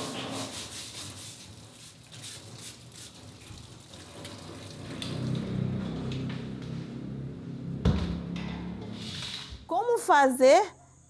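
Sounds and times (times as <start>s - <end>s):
hand scrubbing fruit: 0.0s - 3.9s
tap water splashing into sink: 3.4s - 6.3s.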